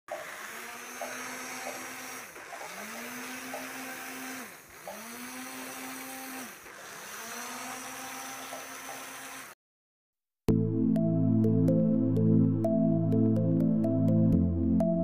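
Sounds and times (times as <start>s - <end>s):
small electric motors whining: 0.1s - 9.6s.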